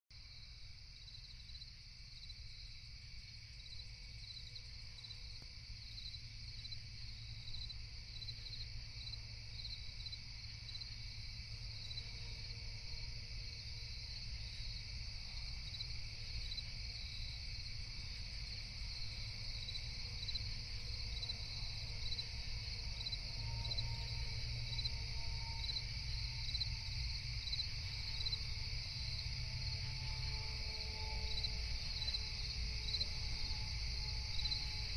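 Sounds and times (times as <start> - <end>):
crickets chirping: 0.2 - 34.9
low drone: 17.6 - 34.9.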